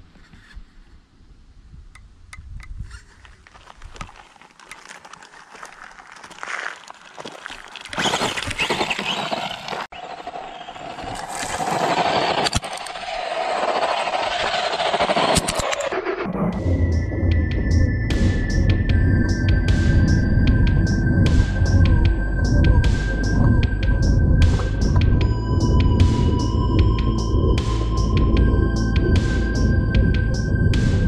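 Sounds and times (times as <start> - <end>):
rc car crunching gravel: 2.7 - 15.9
footsteps on gravel: 2.8 - 9.9.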